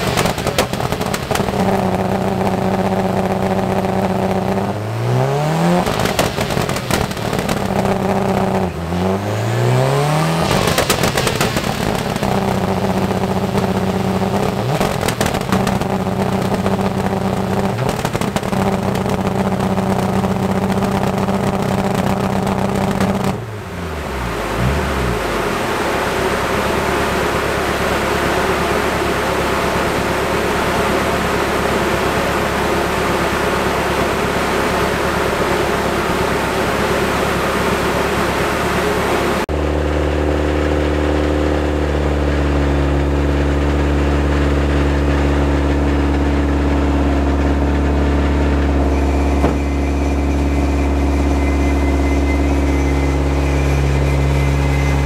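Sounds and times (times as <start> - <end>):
exhaust pops and cracks: 0.0 - 4.5, 5.8 - 8.7, 10.4 - 23.4
rally car engine revving: 0.0 - 55.0.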